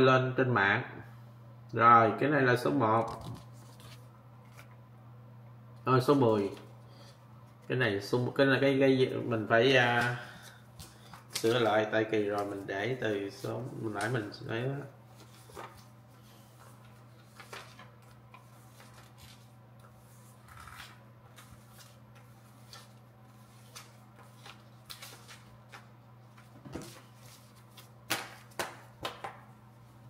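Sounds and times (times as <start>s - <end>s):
paper tickets rustling: 9.8s - 16.0s, 16.6s - 19.5s.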